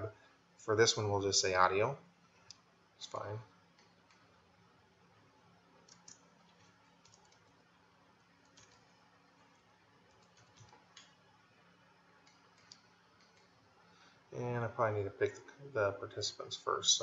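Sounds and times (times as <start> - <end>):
low steady hum: 0.0 - 17.0
keyboard typing: 5.8 - 7.6, 8.4 - 11.2, 12.2 - 13.6.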